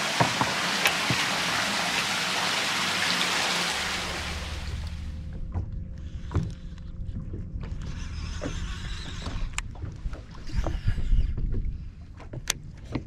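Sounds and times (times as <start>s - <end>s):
water against boat hull: 0.0s - 13.0s
wind on microphone: 7.8s - 12.1s.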